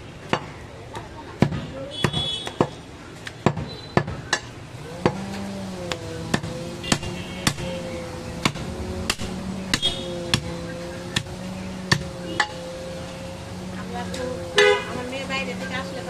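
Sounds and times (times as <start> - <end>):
cleaver chopping meat and bone: 0.3 - 13.0
steady hum: 5.7 - 16.0.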